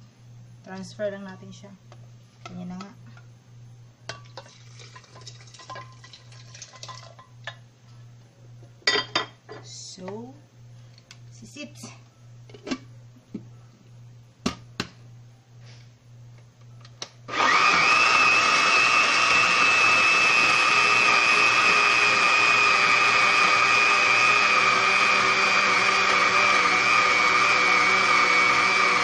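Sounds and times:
blender motor whining: 0:17.3 - 0:29.0.

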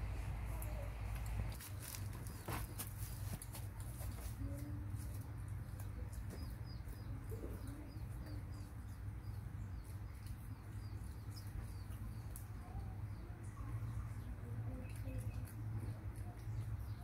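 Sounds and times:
steady low hum: 0:00.0 - 0:17.0
small bird chirping: 0:05.5 - 0:17.0.

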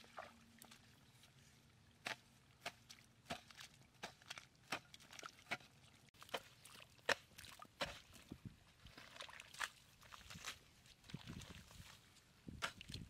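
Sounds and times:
hoe chopping into wet mud: 0:06.3 - 0:08.2.

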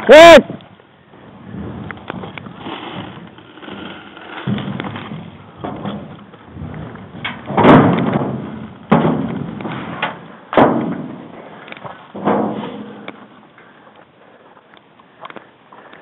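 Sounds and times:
heavy thumps on steel floor: 0:04.5 - 0:11.3.

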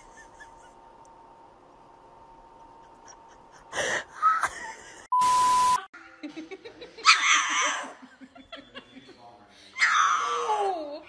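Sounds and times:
flat electronic bleep: 0:05.1 - 0:05.9
puppy howling: 0:09.8 - 0:10.6.

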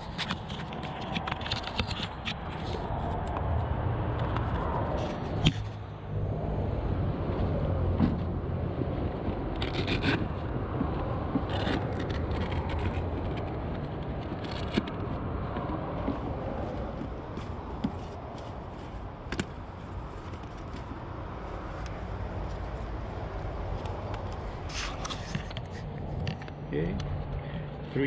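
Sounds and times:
hands rustling and scraping: 0:00.0 - 0:03.2, 0:07.3 - 0:22.7.

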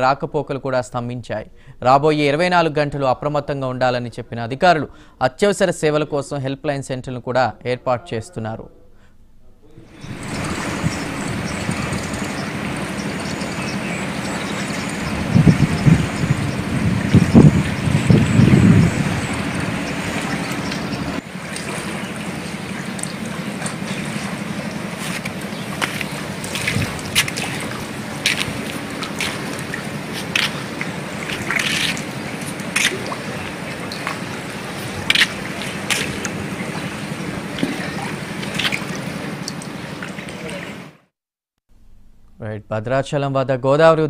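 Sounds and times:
steady low hum: 0:08.7 - 0:40.9
floodwater rushing: 0:09.8 - 0:41.0
short splashes: 0:09.9 - 0:41.0.

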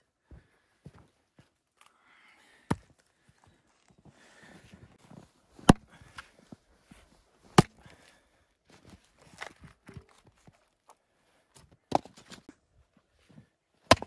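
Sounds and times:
axe chopping firewood: 0:05.6 - 0:06.2, 0:07.5 - 0:08.1, 0:11.9 - 0:12.5.

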